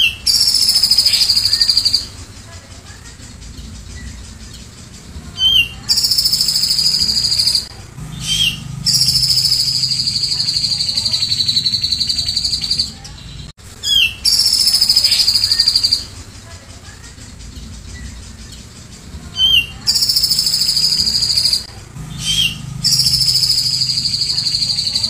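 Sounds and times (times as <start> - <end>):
bird singing buzzing trills: 0.0 - 25.0
short rising bird chirp: 3.3 - 16.1, 17.4 - 25.0.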